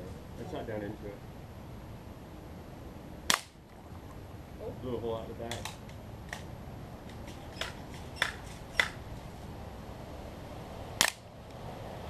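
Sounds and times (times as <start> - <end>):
bb gun shots clicking: 3.3 - 3.6, 5.5 - 6.5, 7.1 - 9.0.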